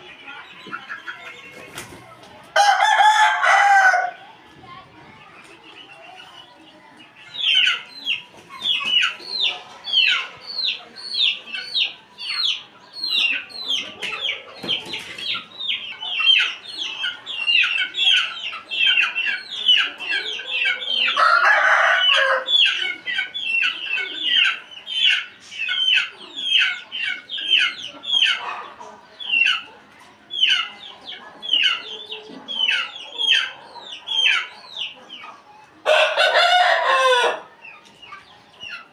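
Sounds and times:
rooster crowing: 2.6 - 4.2, 21.2 - 22.5, 35.9 - 37.5.

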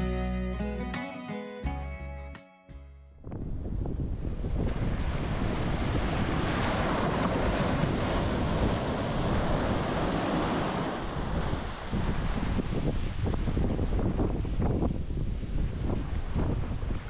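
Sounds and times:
ocean surf breaking on shore: 4.1 - 17.0.

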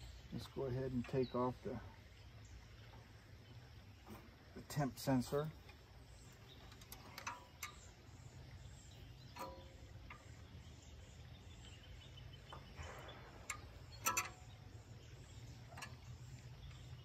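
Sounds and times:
low steady background rumble: 0.0 - 17.0
metal wrench clicking: 13.5 - 14.5.

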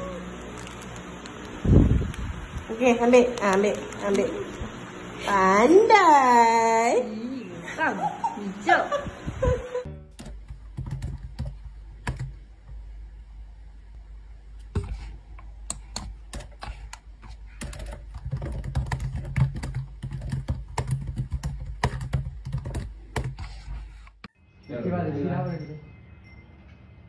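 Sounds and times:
low steady hum: 0.0 - 24.6
laptop keyboard typing: 10.2 - 12.4, 15.7 - 23.8.

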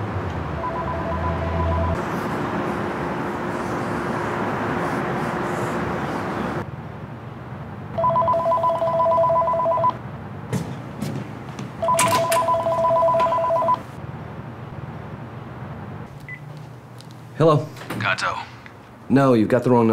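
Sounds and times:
cordless phone ringing: 0.6 - 2.0, 8.0 - 10.0, 11.8 - 13.8.

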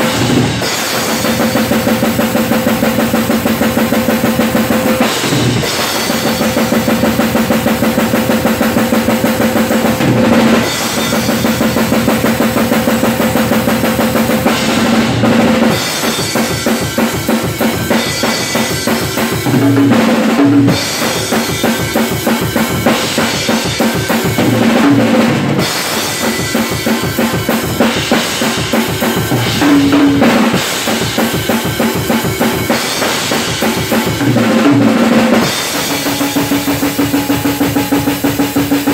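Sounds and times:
cymbal crashes: 0.0 - 38.9
snare and tom hits: 0.0 - 38.9
bass drum strokes: 29.2 - 31.6.

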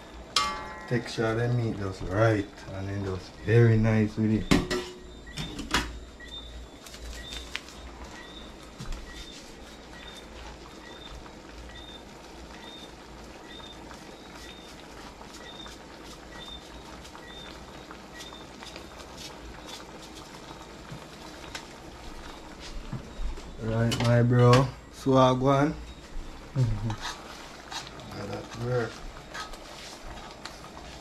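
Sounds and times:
sauce simmering in a pan: 0.0 - 31.0.

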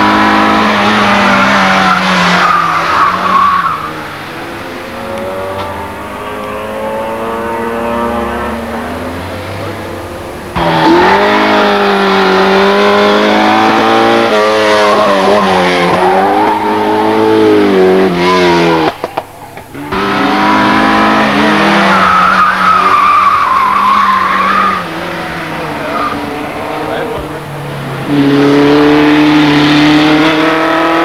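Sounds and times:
rally car engines revving: 0.0 - 31.0
tyre squeal: 1.0 - 3.9, 21.7 - 24.9, 25.8 - 26.3.

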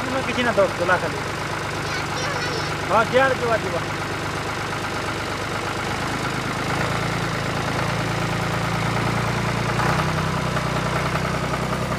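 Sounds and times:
tractor engine idling: 0.0 - 11.9.

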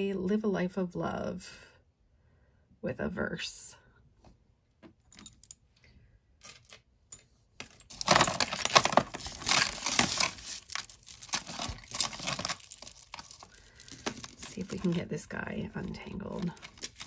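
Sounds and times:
metal jewelry jingling: 6.4 - 15.0, 16.2 - 17.0.

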